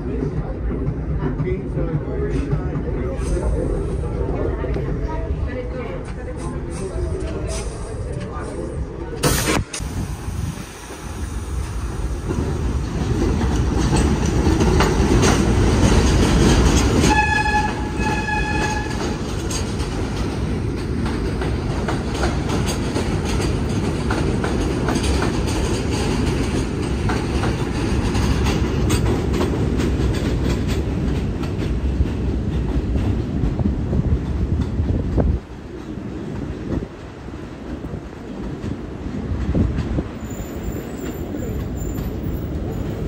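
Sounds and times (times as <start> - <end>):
subway train wheels rumbling and clacking: 0.0 - 43.0
train horn blasts: 17.0 - 19.2.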